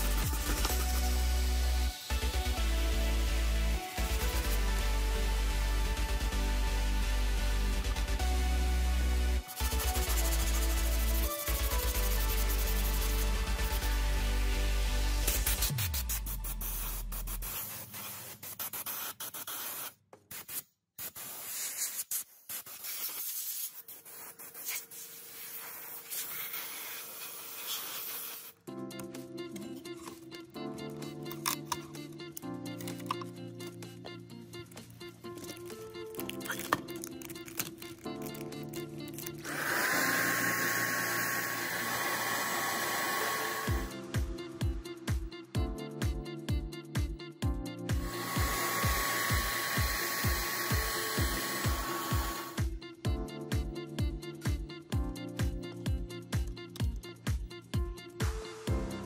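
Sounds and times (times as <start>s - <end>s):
background music: 0.0s - 17.6s, 28.6s - 59.0s
spray paint hissing: 9.5s - 13.4s, 15.3s - 28.6s, 35.4s - 43.9s, 48.0s - 52.6s.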